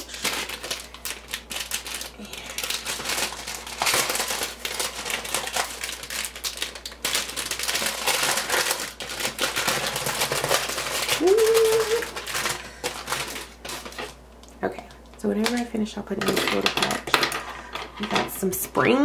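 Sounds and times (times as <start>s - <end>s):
plastic packaging crinkling: 0.0s - 17.4s.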